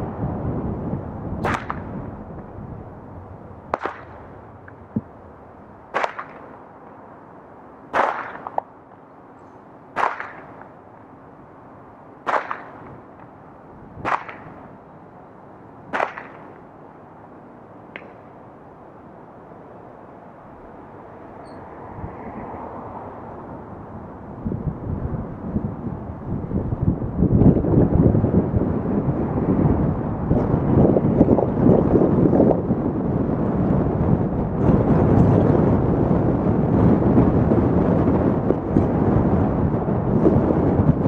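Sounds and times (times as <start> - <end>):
steady background hum: 0.0 - 41.0
sharp swishing snap: 1.4 - 2.0, 3.7 - 4.2, 5.9 - 6.6, 7.9 - 8.7, 10.0 - 10.7, 12.3 - 13.0, 14.0 - 14.6, 15.9 - 16.6.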